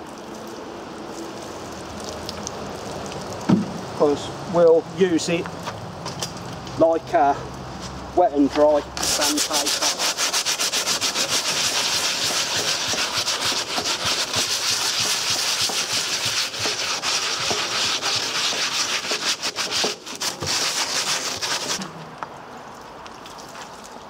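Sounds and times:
sandpaper rubbing on metal: 9.0s - 21.8s.

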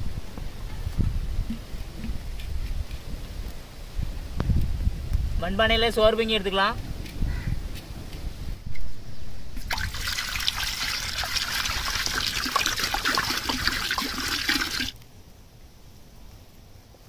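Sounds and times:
water pouring into a pot: 9.6s - 15.0s.

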